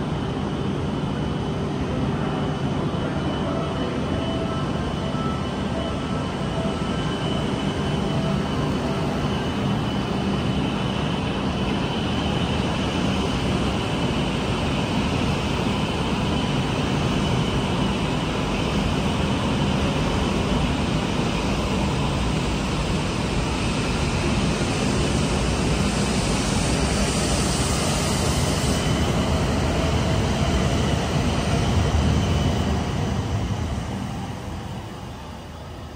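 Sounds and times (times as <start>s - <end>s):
train wheel and running noise: 0.0s - 35.9s
thin high steady tone: 1.7s - 11.6s.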